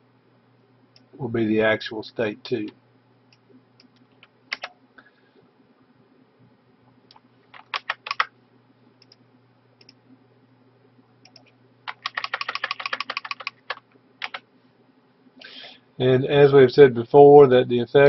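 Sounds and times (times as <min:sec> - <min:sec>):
computer keyboard typing: 0:03.8 - 0:04.7, 0:07.1 - 0:08.3, 0:11.3 - 0:14.4.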